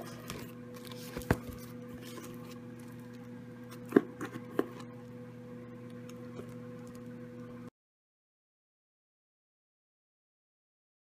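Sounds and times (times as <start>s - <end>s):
steady hum: 0.0s - 7.7s.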